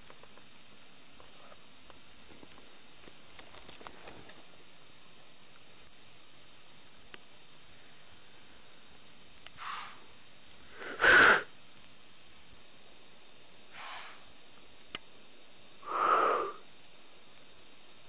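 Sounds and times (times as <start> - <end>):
deer snorting: 9.6 - 10.0.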